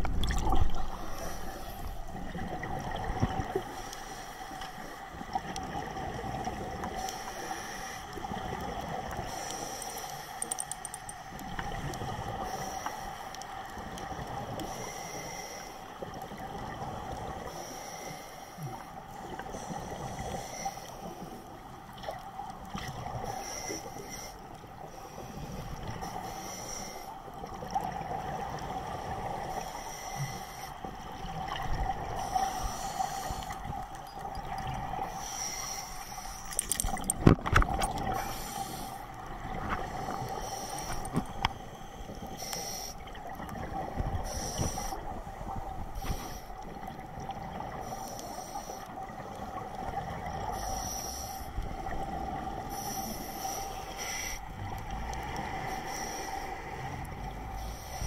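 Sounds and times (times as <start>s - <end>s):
scuba regulator breathing: 0.9s - 2.2s, 6.9s - 8.4s, 9.2s - 13.3s, 14.5s - 15.9s, 17.4s - 18.8s, 19.4s - 21.4s, 23.2s - 27.3s, 29.3s - 30.9s, 32.0s - 33.9s, 35.0s - 37.2s, 38.0s - 43.1s, 44.2s - 46.8s, 47.7s - 49.1s, 50.4s - 58.0s.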